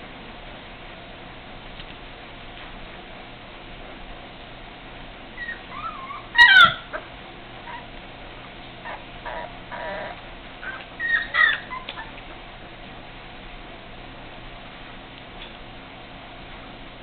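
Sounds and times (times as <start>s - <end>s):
puppies whining and squeaking: 5.4s - 7.9s, 8.8s - 12.3s.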